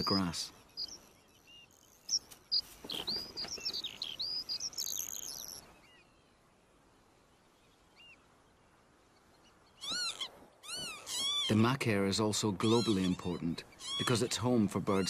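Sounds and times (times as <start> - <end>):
bird chicks chirping: 0.0 - 6.1, 9.2 - 11.6, 12.6 - 15.0
arched bird call: 9.3 - 11.6, 12.6 - 15.0.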